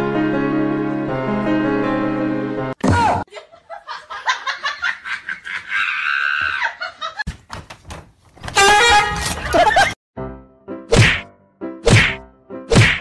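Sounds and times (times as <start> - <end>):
person laughing: 9.4 - 10.0.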